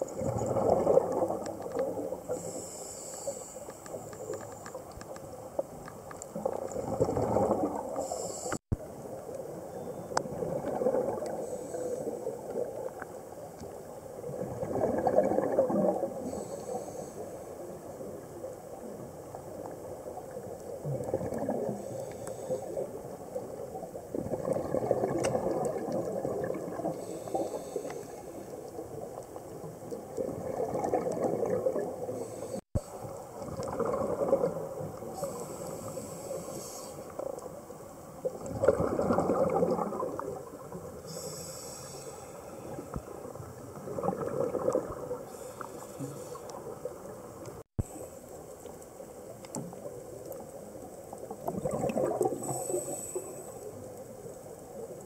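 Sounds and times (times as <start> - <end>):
exhaled bubbles gurgling: 0.0 - 2.7, 5.4 - 48.0, 49.0 - 55.0
regulator inhale hiss: 2.3 - 4.8, 7.9 - 8.7, 11.3 - 12.5, 16.2 - 17.8, 21.7 - 23.2, 26.9 - 28.6, 32.1 - 33.2, 35.1 - 37.2, 41.0 - 43.1, 45.2 - 46.7, 52.4 - 53.8.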